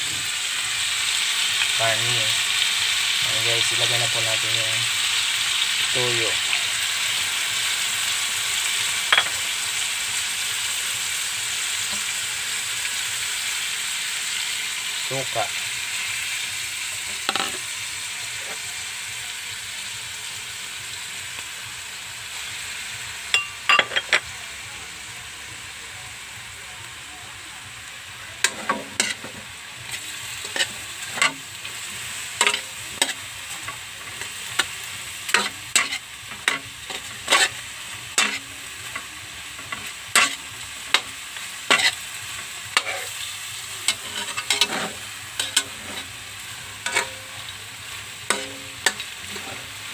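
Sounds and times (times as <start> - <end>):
meat sizzling in a wok: 0.0 - 49.9
spatula scraping wok: 15.2 - 18.7, 28.4 - 49.9.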